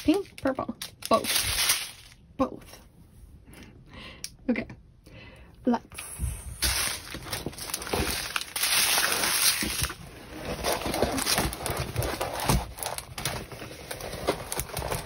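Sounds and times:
plastic film crinkling: 0:00.0 - 0:02.2, 0:06.6 - 0:15.0.

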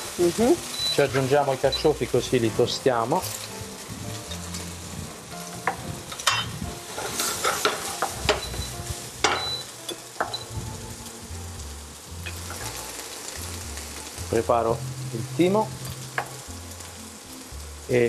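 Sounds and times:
vegetables sizzling in oil: 0:00.0 - 0:18.0
utensils clinking and scraping pans: 0:00.8 - 0:01.7, 0:05.7 - 0:10.4.

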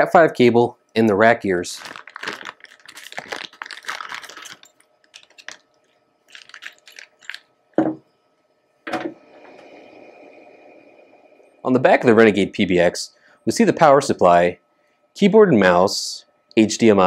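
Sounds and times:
plastic bag crinkling: 0:01.6 - 0:07.5.

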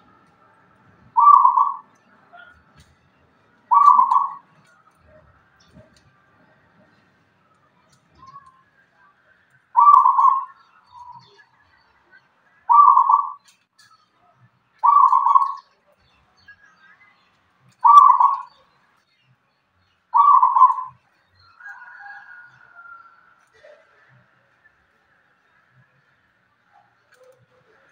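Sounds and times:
soft bird notes: 0:00.0 - 0:08.8, 0:09.8 - 0:11.6, 0:12.7 - 0:14.2, 0:14.8 - 0:15.8, 0:17.7 - 0:18.6, 0:20.2 - 0:21.0
dove cooing: 0:01.1 - 0:02.6, 0:03.7 - 0:04.5, 0:09.8 - 0:11.2, 0:12.7 - 0:13.4, 0:14.8 - 0:15.6, 0:17.8 - 0:18.5, 0:20.2 - 0:20.9.

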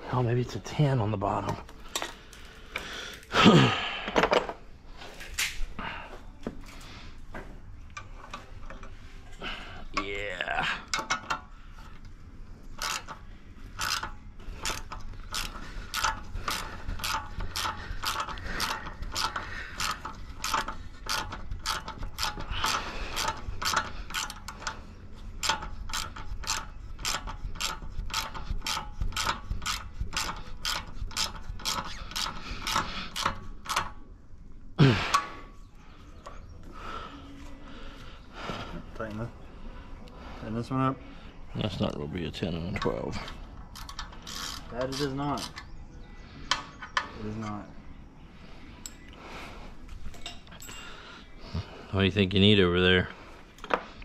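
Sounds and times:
ratchet wrench clicking: 0:12.8 - 0:24.8, 0:25.4 - 0:34.0, 0:43.7 - 0:45.6.

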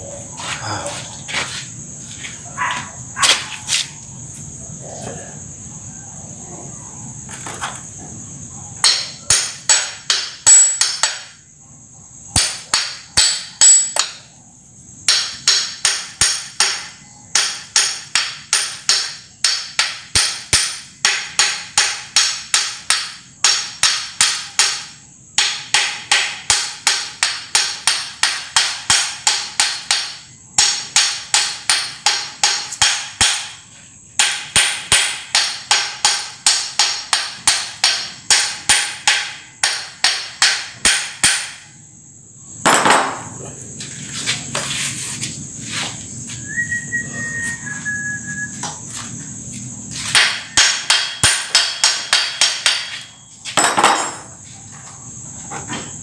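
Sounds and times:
hammer tapping on metal: 0:08.8 - 0:11.3.

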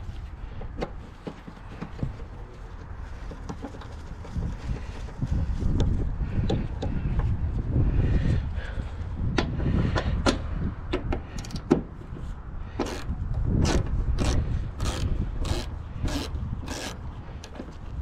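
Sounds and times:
ratchet wrench clicking: 0:13.7 - 0:17.0.

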